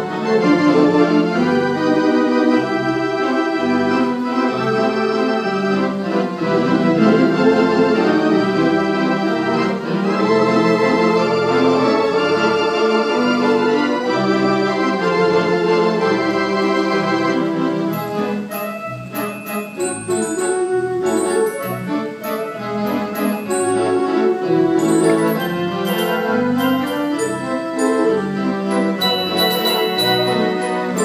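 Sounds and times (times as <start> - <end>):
pipe organ playing chords: 0.0 - 31.0.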